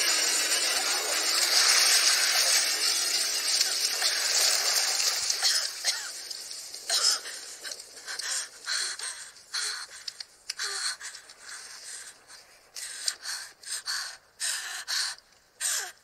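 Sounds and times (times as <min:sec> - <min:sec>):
water splashing and pouring: 0:00.0 - 0:07.7.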